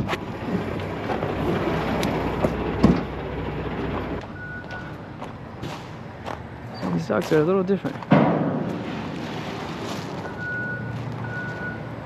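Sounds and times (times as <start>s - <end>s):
diesel truck engine idling: 0.0s - 6.7s.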